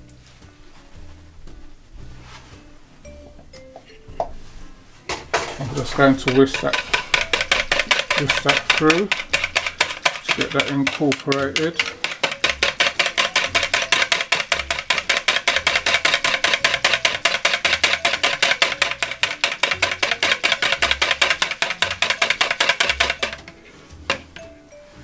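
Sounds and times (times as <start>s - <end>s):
background music with bass: 0.0s - 22.1s
wire whisk clattering in bowl: 5.3s - 24.2s.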